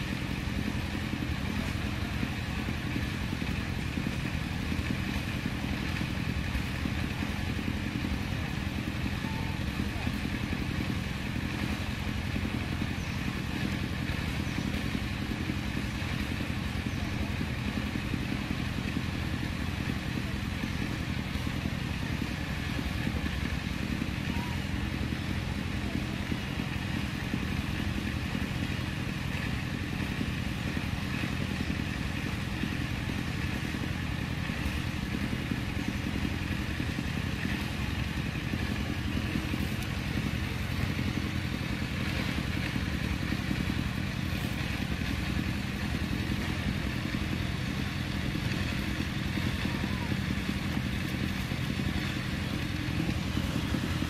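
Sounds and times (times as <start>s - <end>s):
engine running steadily: 0.0s - 54.0s.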